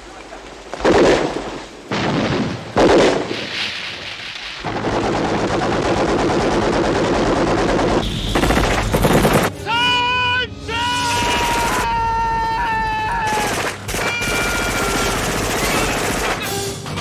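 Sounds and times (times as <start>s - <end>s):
machine gun firing: 0.8s - 9.5s, 13.3s - 16.6s.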